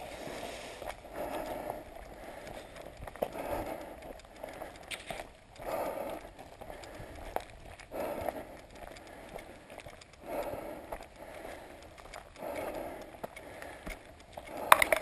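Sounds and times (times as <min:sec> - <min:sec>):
rustling noise: 0:00.0 - 0:01.0
running footsteps on dirt trail: 0:00.0 - 0:15.0.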